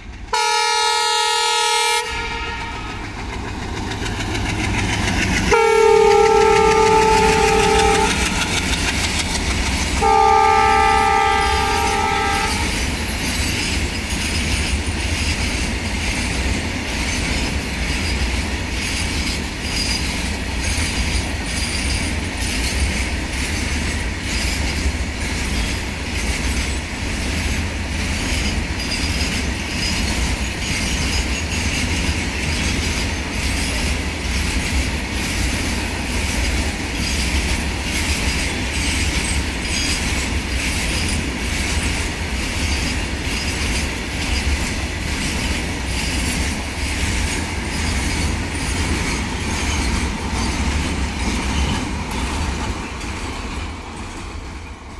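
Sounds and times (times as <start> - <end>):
train rolling past: 0.0 - 54.9
train horn: 0.3 - 3.1, 5.5 - 8.6, 10.0 - 12.8
wheels clattering over rail joints: 2.4 - 10.3, 10.9 - 54.9.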